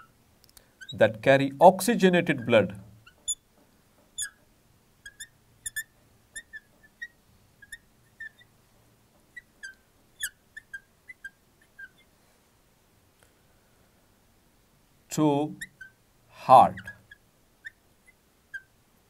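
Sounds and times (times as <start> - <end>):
marker squeaking on glass: 0.8 - 1.2, 2.3 - 3.4, 4.1 - 4.4, 5.0 - 8.5, 9.3 - 12.1, 15.4 - 16.0, 16.6 - 18.8.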